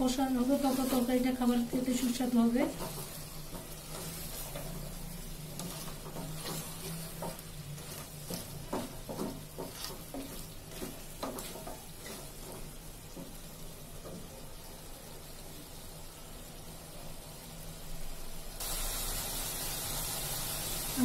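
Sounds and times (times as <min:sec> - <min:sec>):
spices sizzling: 0:00.0 - 0:21.0
spatula scraping a pot: 0:00.4 - 0:12.7.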